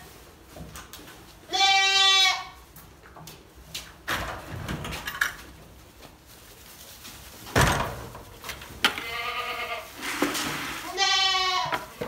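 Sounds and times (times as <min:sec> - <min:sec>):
rustling: 0:00.0 - 0:12.0
goat bleating: 0:01.5 - 0:02.6, 0:08.9 - 0:10.0, 0:10.8 - 0:12.0.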